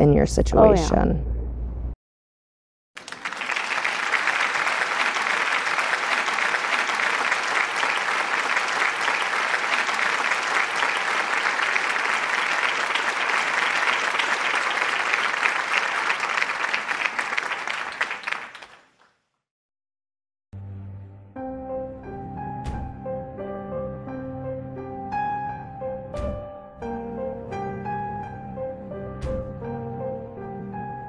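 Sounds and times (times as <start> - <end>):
applause: 3.0 - 19.2.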